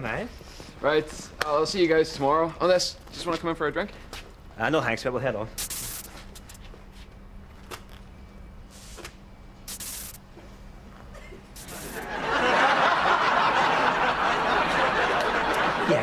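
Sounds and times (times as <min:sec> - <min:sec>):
audience laughter: 0:11.7 - 0:16.0.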